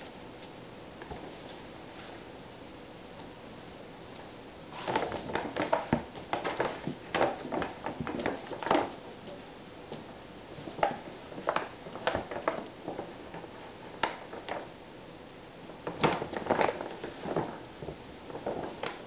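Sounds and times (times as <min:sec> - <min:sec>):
paper bag crinkling: 0:04.8 - 0:09.0, 0:15.8 - 0:19.0.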